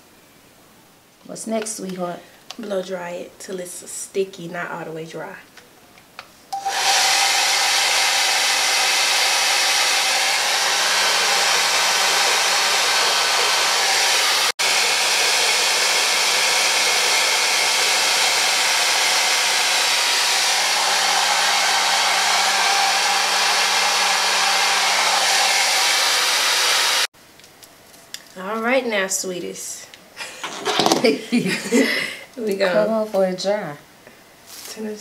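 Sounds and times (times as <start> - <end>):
hair dryer blowing: 6.6 - 27.1.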